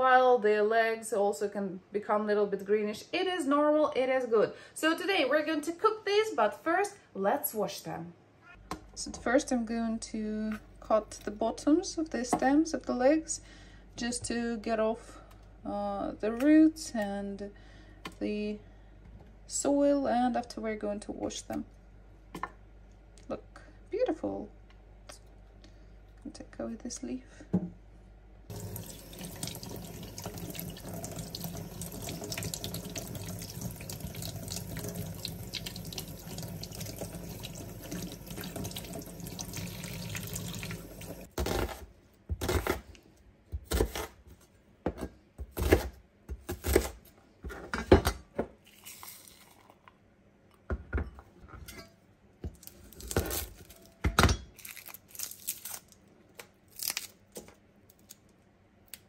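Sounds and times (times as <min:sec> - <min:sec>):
tap water running into a sink: 0:28.5 - 0:41.3.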